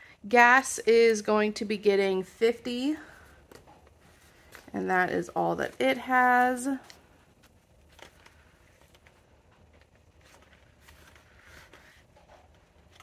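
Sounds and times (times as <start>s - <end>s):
paper banknotes rustling: 3.1s - 13.0s.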